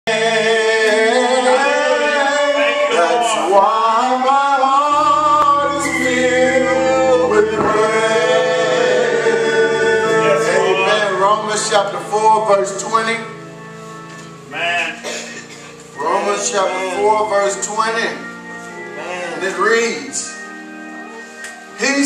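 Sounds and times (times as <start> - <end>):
man singing gospel: 0.1 - 13.4, 16.0 - 18.2
low sustained chords: 4.9 - 20.8.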